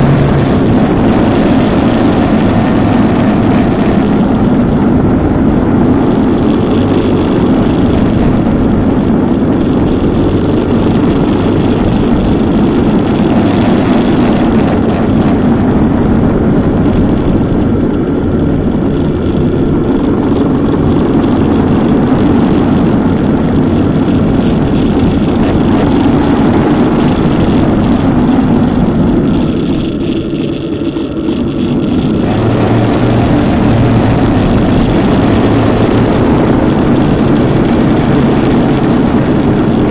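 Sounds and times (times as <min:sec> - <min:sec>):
motorcycle engine running: 0:00.0 - 0:39.9
road and wind noise: 0:00.0 - 0:39.9.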